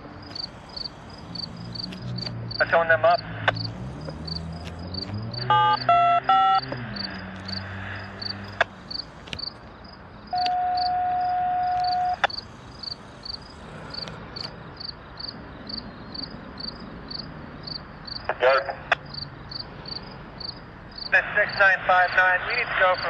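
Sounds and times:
crickets chirping: 0:00.0 - 0:23.0
short electronic beeps: 0:05.4 - 0:06.7, 0:10.3 - 0:12.4.

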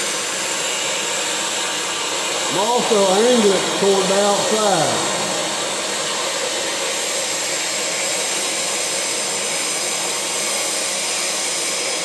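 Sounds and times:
cutting torch hissing: 0:00.7 - 0:08.4.

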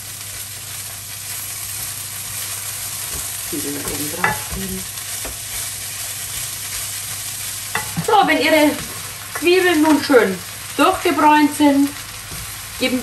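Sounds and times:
onions sizzling in frying pan: 0:00.0 - 0:13.0
utensil clinking against pan: 0:03.8 - 0:04.6.

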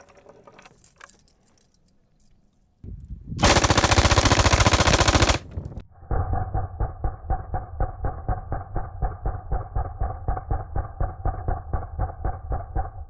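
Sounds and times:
machine gun full-auto burst: 0:03.4 - 0:05.5.

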